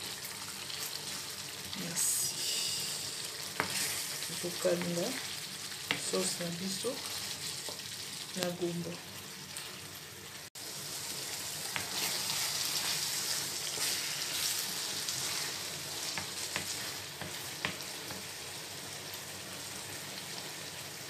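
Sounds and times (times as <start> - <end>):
stew sizzling in frying pan: 0.0 - 21.0
spatula scraping and tapping pan: 3.6 - 3.9, 15.2 - 18.3.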